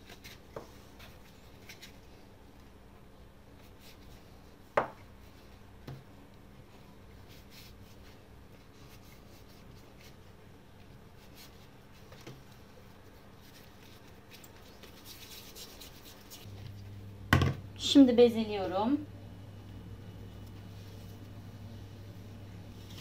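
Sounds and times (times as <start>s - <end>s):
sharp knock on wooden countertop: 17.3s - 17.6s.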